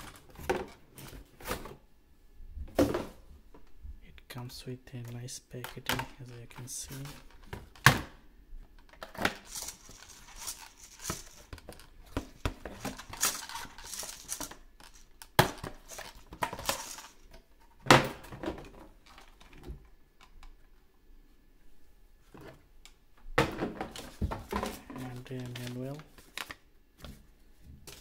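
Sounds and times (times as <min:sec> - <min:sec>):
packaging rustling: 0:09.0 - 0:17.3, 0:23.9 - 0:26.6.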